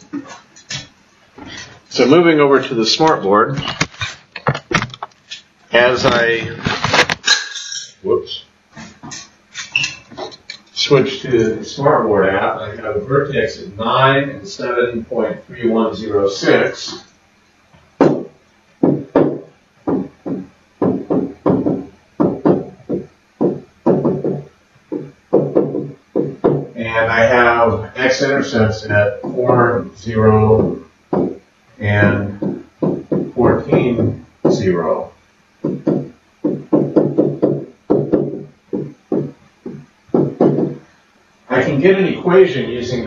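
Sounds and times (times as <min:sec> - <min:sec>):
pen knocking on whiteboard: 0:18.0 - 0:26.7, 0:30.6 - 0:31.4, 0:32.4 - 0:33.4, 0:35.6 - 0:40.8
man humming: 0:29.0 - 0:34.7.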